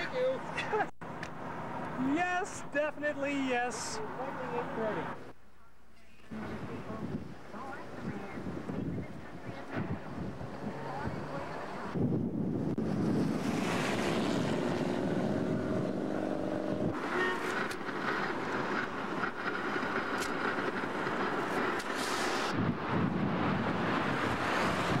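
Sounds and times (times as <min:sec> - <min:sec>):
tornado wind roar: 0:06.3 - 0:25.0.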